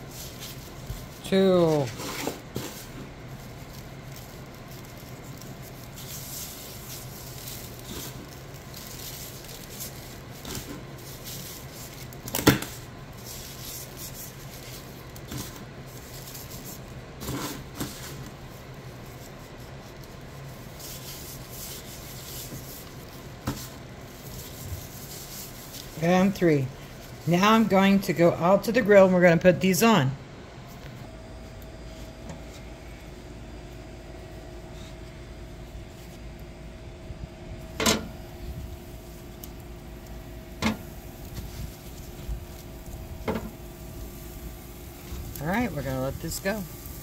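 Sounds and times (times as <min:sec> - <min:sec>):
hands rubbing raw meat: 0:00.0 - 0:27.3, 0:39.4 - 0:47.0
steady low hum: 0:00.0 - 0:47.0.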